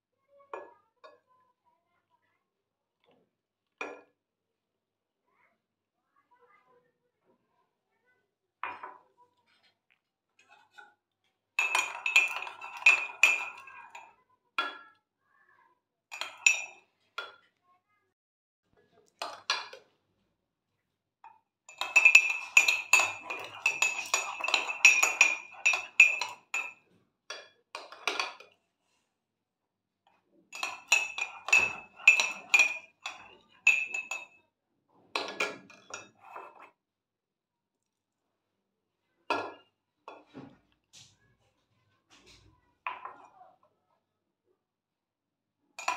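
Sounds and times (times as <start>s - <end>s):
spoon clinking in ceramic mug: 11.6s - 14.8s, 16.1s - 17.4s, 21.7s - 28.4s, 30.6s - 34.4s.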